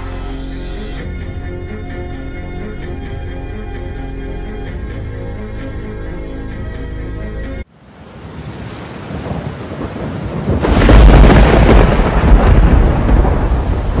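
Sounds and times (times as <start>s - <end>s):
music: 0.0s - 7.7s
thunder rumble: 8.9s - 14.0s.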